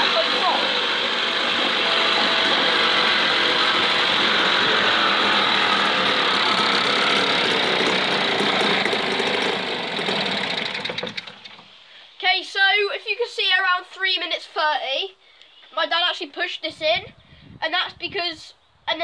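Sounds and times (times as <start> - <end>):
outboard motor running: 0.0 - 11.7
propeller churning water: 0.0 - 11.7.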